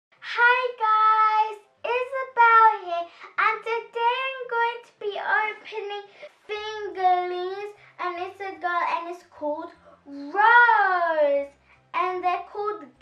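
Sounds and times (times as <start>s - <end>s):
girl singing: 0.3s - 13.0s.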